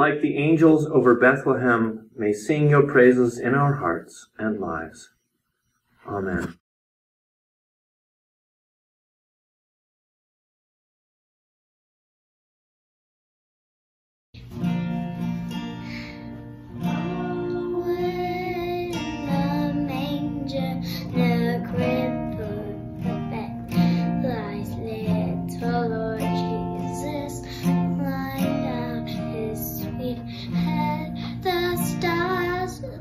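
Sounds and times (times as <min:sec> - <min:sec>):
strummed acoustic guitar: 0:14.4 - 0:33.0
girl singing: 0:16.7 - 0:33.0.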